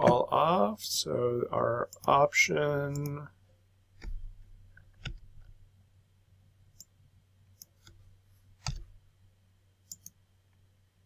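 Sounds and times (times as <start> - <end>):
low steady hum: 0.0 - 11.0
mouse buttons clicking: 8.6 - 8.9, 9.9 - 10.2.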